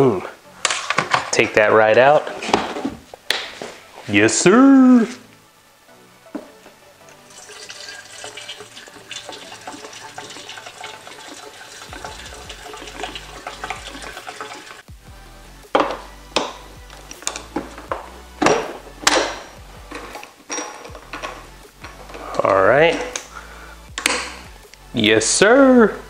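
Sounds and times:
plastic can clacks and knocks: 0.7s - 1.4s, 2.4s - 3.0s, 15.8s - 16.6s
gasoline pouring into tank: 7.1s - 14.9s.

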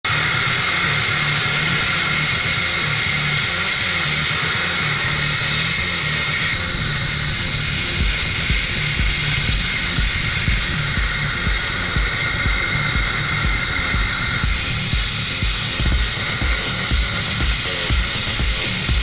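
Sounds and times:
uneven low hum: 0.0s - 19.0s
sandblasting nozzle hissing: 16.0s - 18.9s.

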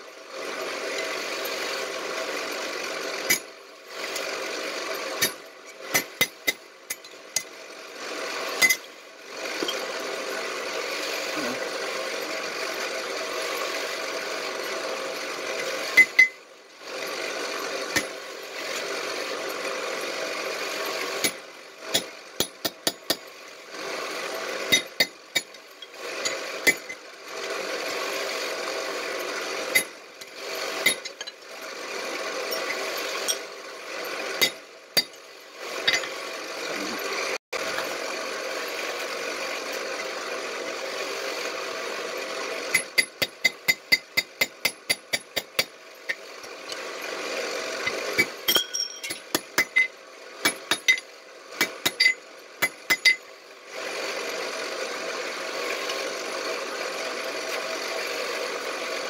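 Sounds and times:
hammer striking steel on anvil: 48.2s - 51.0s, 51.6s - 53.2s.

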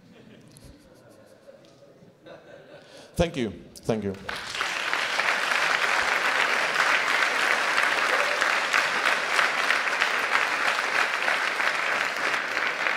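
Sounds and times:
audience applauding: 4.3s - 12.9s.

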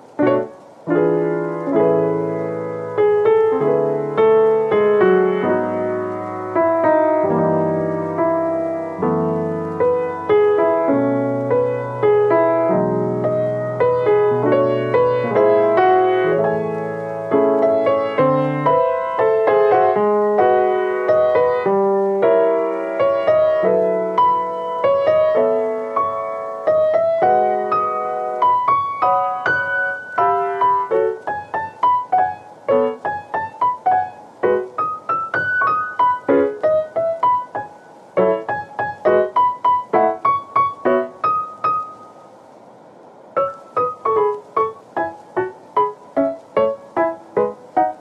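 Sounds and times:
piano music: 0.0s - 42.6s, 43.2s - 48.0s.

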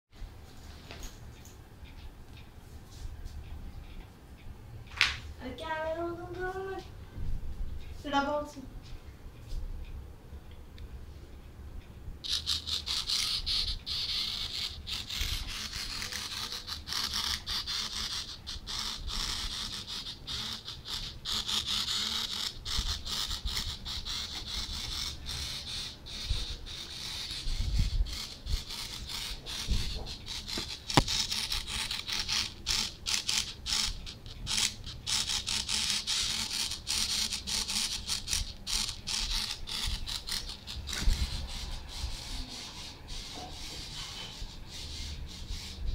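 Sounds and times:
servo motor whirring: 12.2s - 45.8s.

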